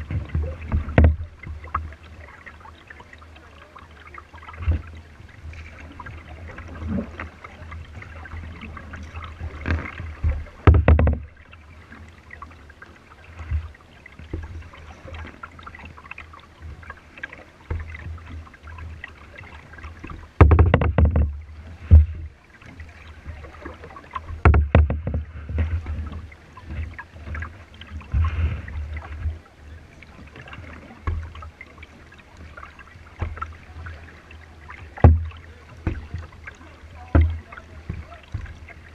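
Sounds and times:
dull low knocks: 0:00.0 - 0:01.8, 0:09.2 - 0:11.5, 0:20.0 - 0:22.4, 0:24.2 - 0:27.4, 0:34.8 - 0:36.3, 0:37.0 - 0:38.8
paddle strokes splashing: 0:00.0 - 0:38.9
water lapping at hull: 0:00.0 - 0:38.9.

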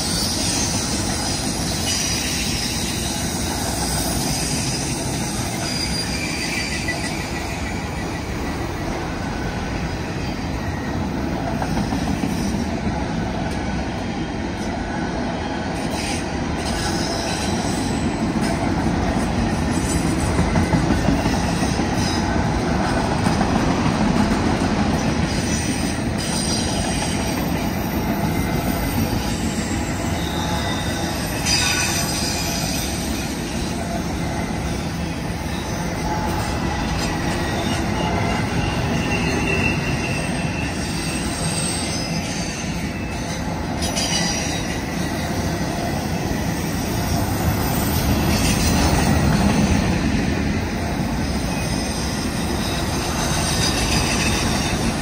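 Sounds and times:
high-pitched wheel squeal: 0:00.0 - 0:08.5, 0:28.1 - 0:45.4, 0:51.2 - 0:55.0
train wheels rumbling on rail: 0:00.0 - 0:55.0.

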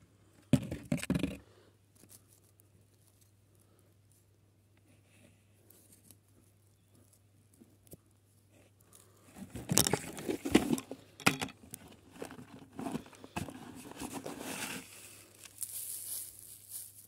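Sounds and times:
dry soil crumbling: 0:11.7 - 0:17.0
scraping rustle: 0:11.9 - 0:17.0.

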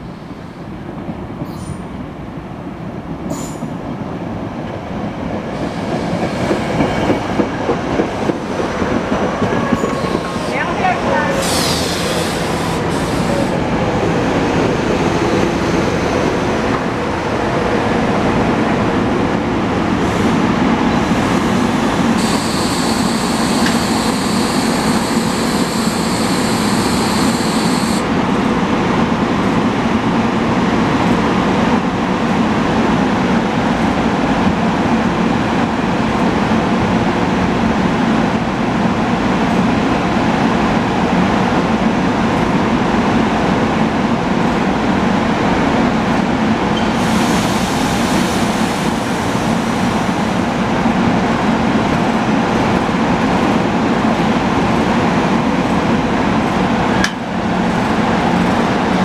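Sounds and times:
train equipment drone: 0:05.4 - 0:32.9.

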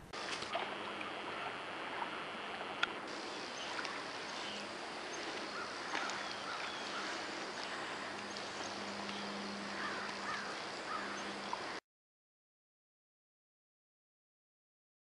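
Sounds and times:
outdoor ambience: 0:00.0 - 0:11.8
water sloshing from swimming dog: 0:00.0 - 0:11.8.

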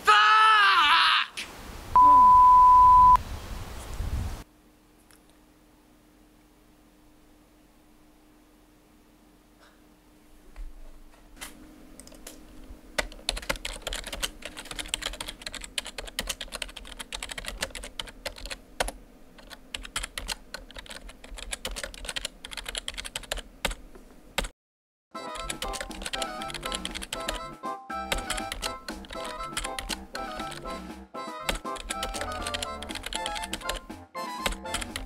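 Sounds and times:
computer keyboard typing: 0:13.0 - 0:23.8, 0:25.3 - 0:27.5, 0:28.1 - 0:30.7, 0:31.5 - 0:35.0
music: 0:25.2 - 0:35.0.

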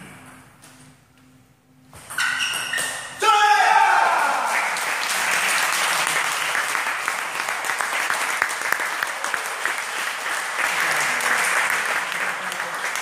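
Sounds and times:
audience clapping: 0:04.1 - 0:13.0.

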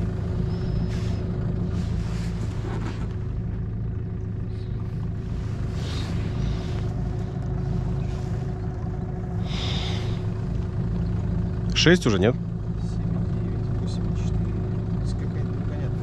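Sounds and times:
outboard motor running: 0:00.0 - 0:16.0.

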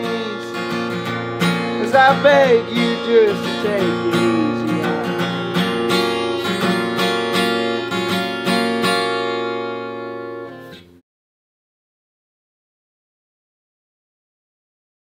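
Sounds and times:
strummed acoustic guitar song: 0:00.0 - 0:11.0.

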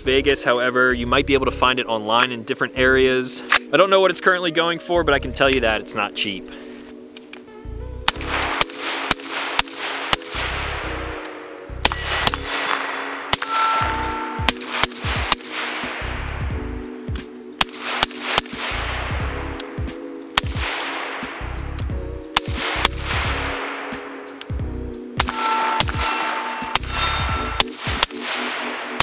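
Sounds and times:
suppressed rifle shots with echo: 0:08.1 - 0:29.0.

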